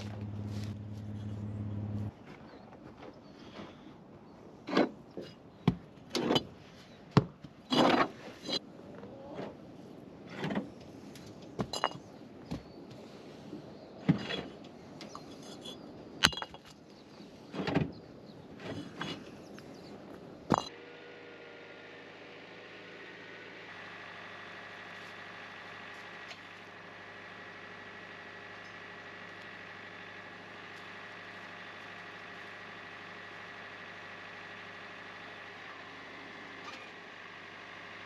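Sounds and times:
bricks clunking on bricks: 11.6 - 12.6, 16.2 - 16.8, 20.5 - 20.7.

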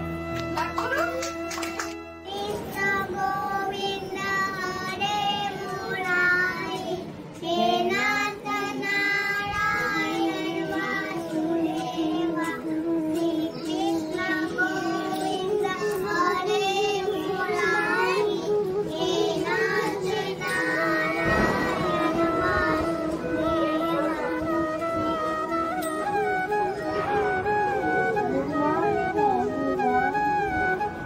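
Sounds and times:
backing music: 0.0 - 4.7, 9.0 - 31.0
girl singing into a microphone: 2.2 - 26.0.

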